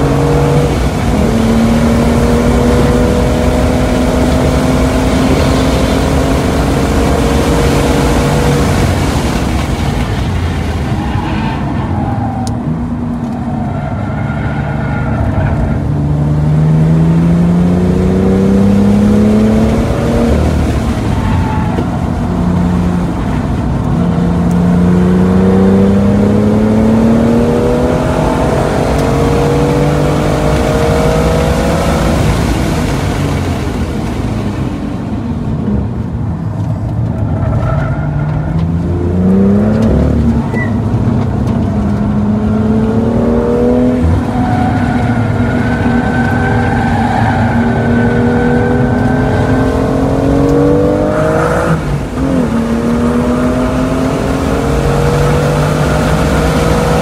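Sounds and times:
car engine accelerating hard: 0.0s - 11.2s, 14.8s - 57.0s.

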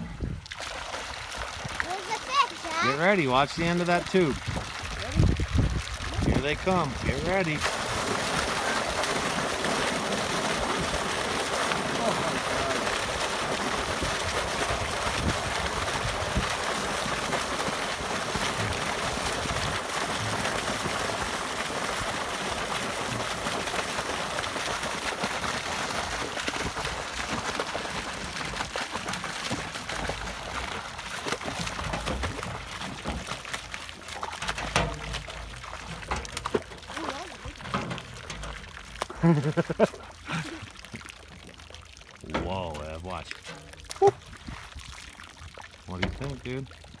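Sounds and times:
water gushing into a pond: 0.0s - 47.0s.

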